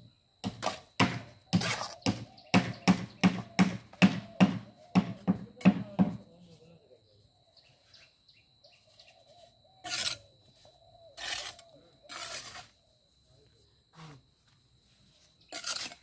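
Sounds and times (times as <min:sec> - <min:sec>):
trowel scraping concrete block wall: 0:01.6 - 0:02.0, 0:09.8 - 0:10.2, 0:11.2 - 0:12.8, 0:15.5 - 0:16.0.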